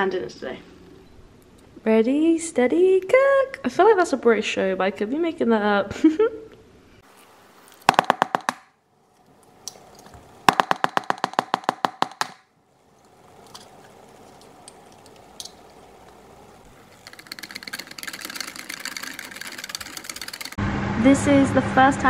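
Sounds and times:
whisk clicking against jug: 0:15.0 - 0:20.6.

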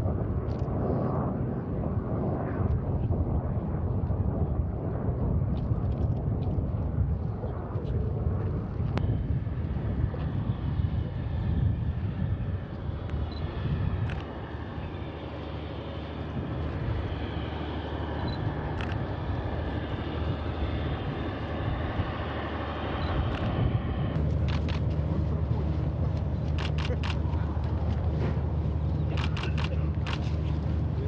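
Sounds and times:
locomotive engine rumble: 0:12.5 - 0:31.0
sharp clicks: 0:29.1 - 0:30.3.

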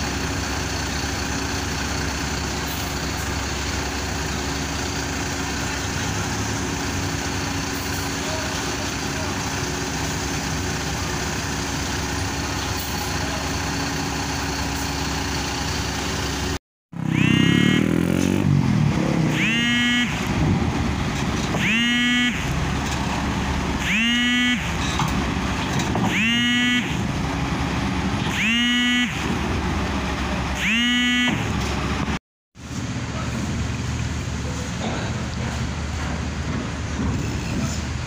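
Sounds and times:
bus diesel engine running: 0:00.0 - 0:38.0
rising pitched tone: 0:17.0 - 0:20.2.

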